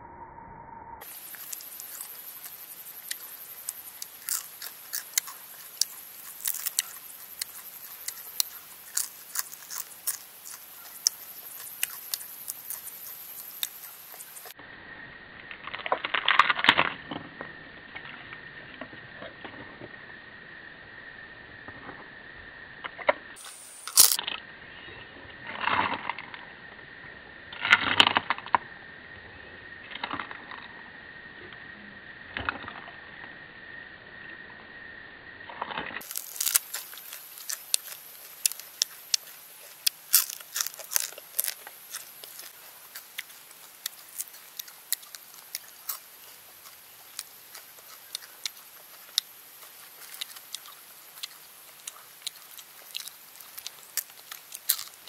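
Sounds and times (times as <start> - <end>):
steady high tone: 0.0 - 2.3
brittle crackling snaps: 1.0 - 14.6, 23.4 - 24.2, 36.0 - 55.0
crunchy chewing: 1.0 - 14.6, 23.4 - 24.4, 35.6 - 55.0.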